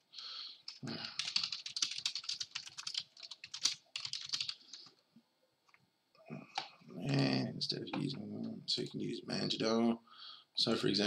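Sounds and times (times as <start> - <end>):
fast typing on keyboard: 0.7 - 4.9.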